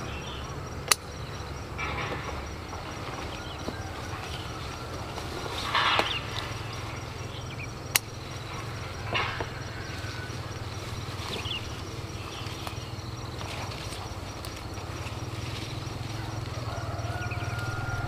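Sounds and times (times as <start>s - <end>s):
birds calling: 0.0s - 18.0s
insects calling: 0.0s - 18.0s
steady low hum: 0.0s - 18.0s
sharp click: 0.8s - 1.1s
plants rustling: 1.5s - 18.0s.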